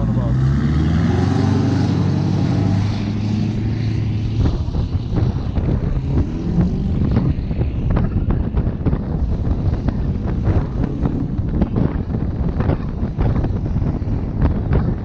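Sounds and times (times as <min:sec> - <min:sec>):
vehicle engine droning: 0:00.0 - 0:15.0
wind buffeting microphone: 0:00.0 - 0:15.0.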